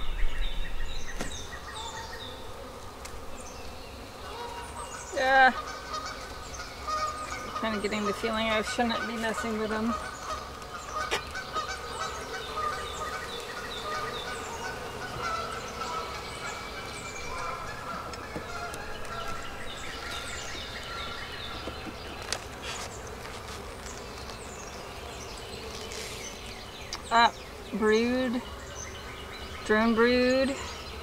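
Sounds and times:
birds chirping: 0.0 - 31.0
honeybees buzzing: 0.0 - 31.0.

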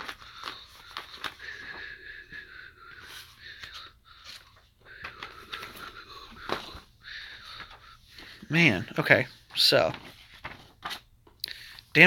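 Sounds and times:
magazine pages rustling: 0.0 - 1.9, 3.0 - 8.4, 9.2 - 11.2.

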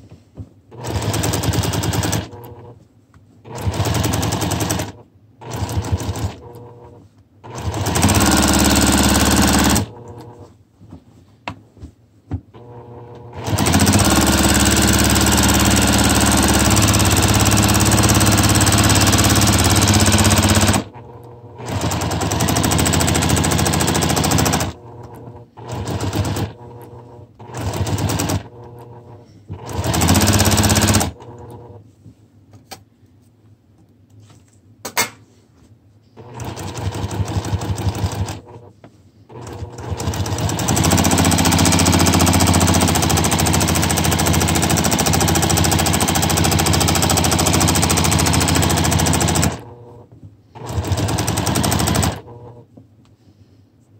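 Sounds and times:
sewing machine stitching: 0.7 - 2.8, 3.4 - 10.4, 12.6 - 31.8, 36.2 - 38.7, 39.3 - 52.6.

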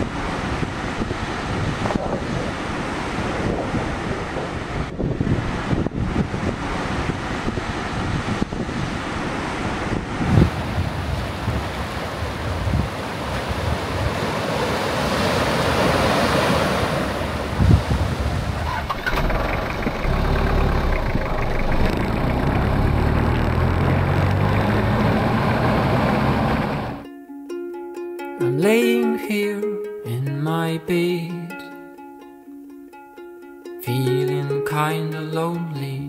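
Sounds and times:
wind buffeting microphone: 0.0 - 27.0
surf breaking on rocks: 6.4 - 26.0
vehicle driving on paved road: 18.1 - 27.0.

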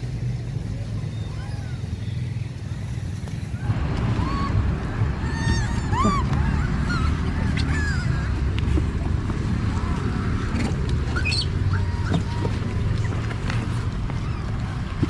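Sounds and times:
steady low rumble: 0.0 - 15.0
monkeys giving high calls: 3.6 - 8.6, 9.7 - 13.2.

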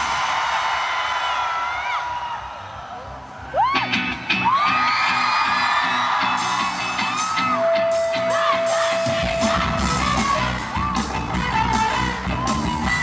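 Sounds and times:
live rock band playing: 6.1 - 13.0.

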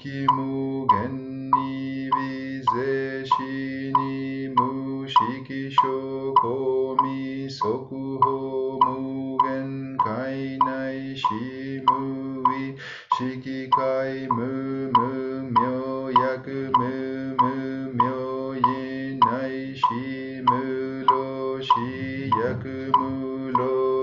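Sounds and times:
light percussive beat: 0.0 - 12.6, 13.7 - 24.0
person chanting: 0.0 - 24.0
low drone: 21.8 - 23.6.

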